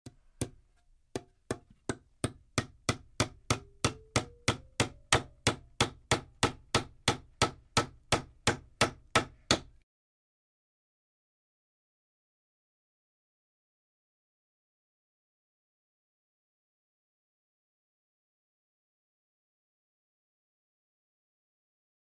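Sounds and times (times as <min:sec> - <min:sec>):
hammer driving nails: 0:01.2 - 0:09.8
faint ringing rising in pitch: 0:03.5 - 0:05.4.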